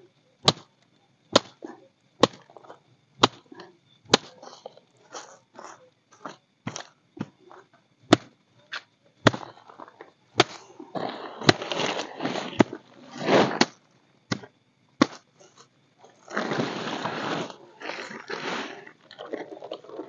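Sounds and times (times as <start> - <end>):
plastic tarp rustling: 10.9 - 13.6, 16.2 - 18.9.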